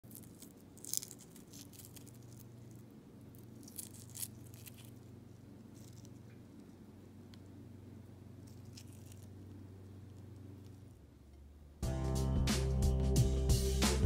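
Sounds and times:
eggshell crackling as peeled: 0.0s - 7.5s, 8.3s - 11.0s
low steady hum: 0.0s - 14.0s.

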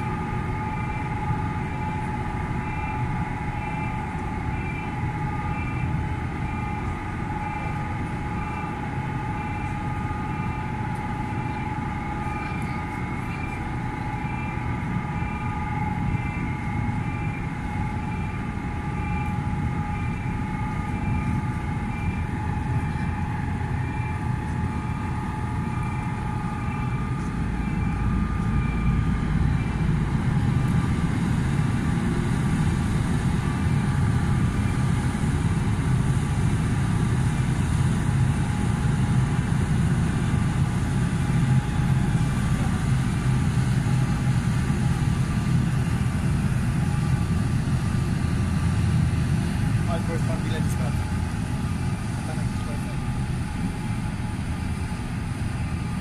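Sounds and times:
pulsing higher tone: 0.0s - 30.9s
ferry machinery droning hum: 0.0s - 56.0s.

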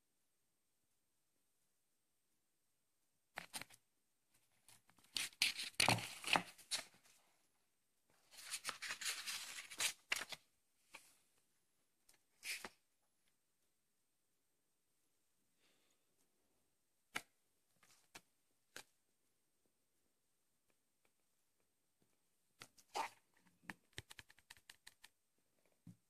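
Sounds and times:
book pages riffling: 8.3s - 10.4s.

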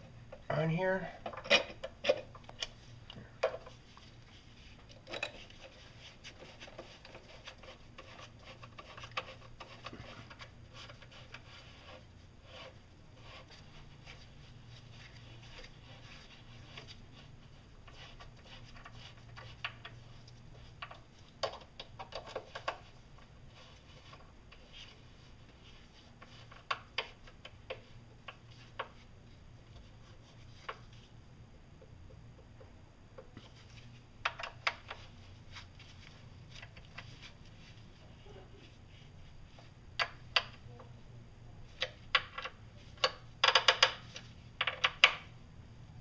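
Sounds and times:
allen key screws scraping and ticking: 1.2s - 2.7s, 4.9s - 12.0s
small metal clicks and knocks: 1.2s - 3.7s, 4.9s - 5.8s, 20.8s - 22.9s, 41.8s - 45.3s.

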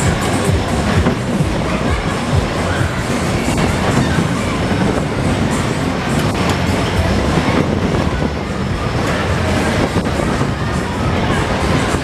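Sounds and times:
music playing: 0.0s - 12.0s
ride cars rumbling on track: 0.0s - 12.0s.

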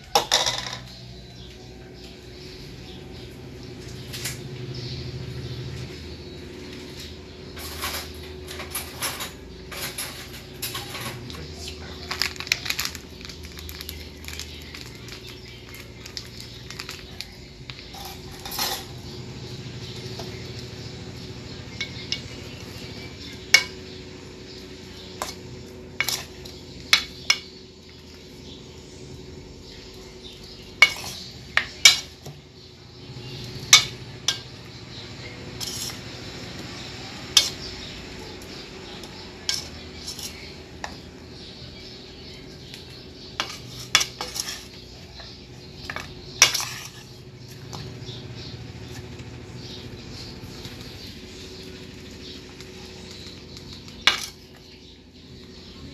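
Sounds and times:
spoon stirring chicken in bowl: 39.0s - 41.2s, 42.8s - 48.0s.

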